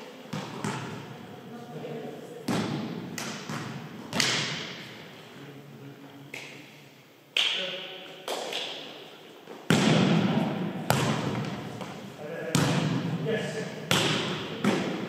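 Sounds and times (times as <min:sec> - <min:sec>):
volleyball slaps echoing: 0:00.3 - 0:01.0, 0:02.5 - 0:05.0, 0:09.7 - 0:13.2, 0:13.8 - 0:15.0.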